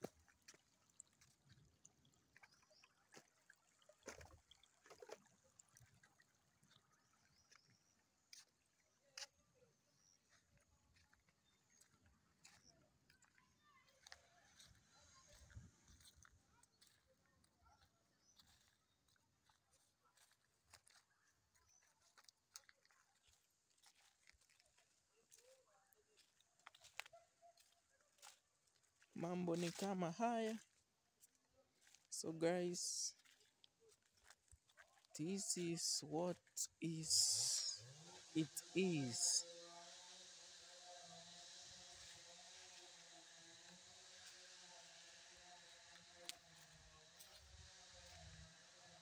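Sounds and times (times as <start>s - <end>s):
footsteps through grass and leaves: 10.3s - 49.0s.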